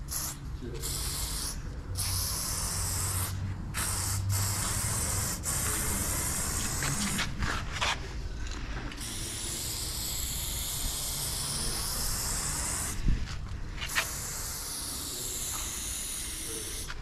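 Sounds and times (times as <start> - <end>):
spray paint can hissing: 0.0 - 7.4, 9.0 - 13.0, 13.8 - 17.0.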